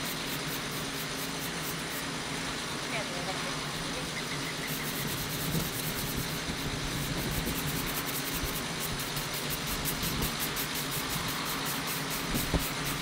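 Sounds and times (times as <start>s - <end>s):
vehicle engine idling: 0.0s - 13.0s
sponge scrubbing stone: 4.7s - 13.0s.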